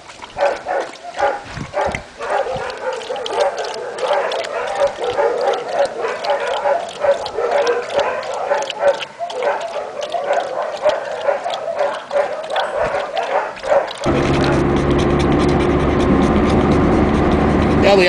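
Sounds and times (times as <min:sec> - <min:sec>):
dog lapping water: 0:00.0 - 0:18.0
road noise: 0:01.2 - 0:18.0
car engine drone: 0:14.0 - 0:18.0.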